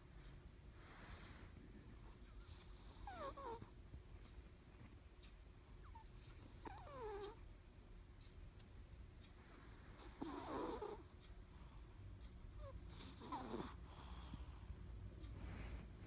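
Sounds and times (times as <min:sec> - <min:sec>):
cat snoring: 0:02.4 - 0:03.7, 0:05.8 - 0:07.4, 0:09.9 - 0:11.0, 0:12.6 - 0:14.3.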